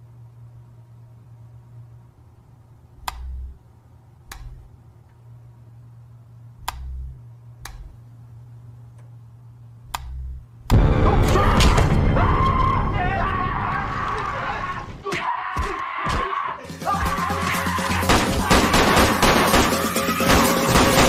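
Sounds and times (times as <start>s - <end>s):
low hum: 0.0s - 15.0s
sharp clicks: 3.0s - 3.6s, 4.3s - 4.7s, 6.6s - 8.0s, 9.9s - 10.8s
people yelling: 11.0s - 20.4s.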